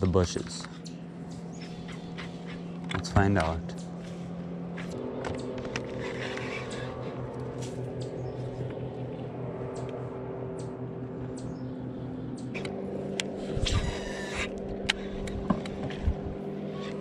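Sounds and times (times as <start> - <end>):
rattling buzz: 0.0 - 17.0
electric motor humming: 0.6 - 17.0
light clicks: 7.4 - 11.6, 12.3 - 13.3.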